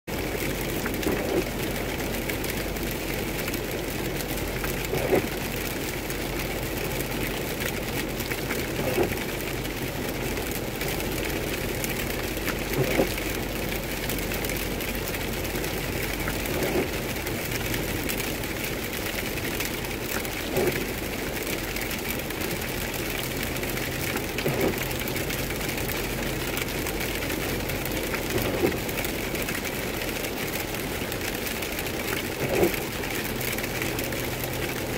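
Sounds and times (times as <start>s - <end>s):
road and rain noise inside car: 0.1s - 34.9s
windshield wipers sweeping: 0.1s - 34.9s.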